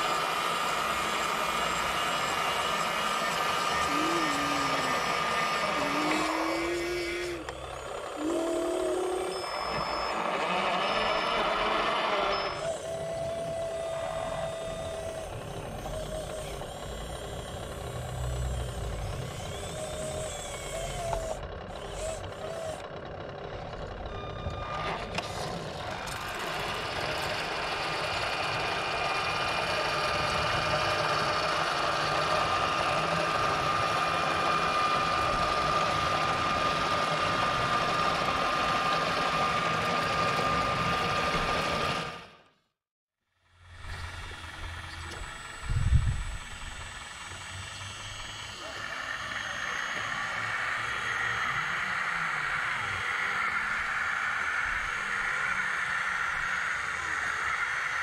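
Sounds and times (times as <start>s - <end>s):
electric motors whining: 0.0s - 42.7s, 43.4s - 58.0s
short beeping tones: 9.1s - 11.4s.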